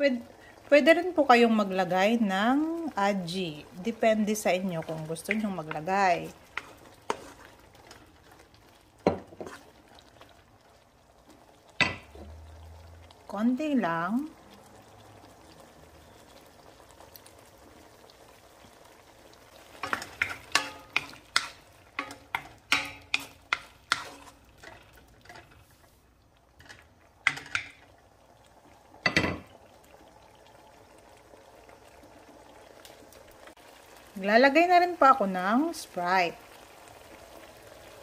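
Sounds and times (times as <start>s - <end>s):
wooden spoon scraping a wok: 6.4s - 8.1s, 9.2s - 9.8s, 19.8s - 26.9s.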